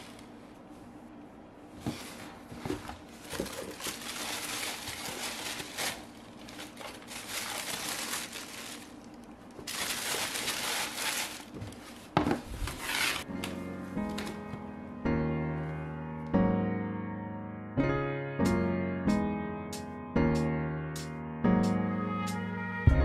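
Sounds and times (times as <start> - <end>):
tissue paper rustling: 1.8 - 14.5.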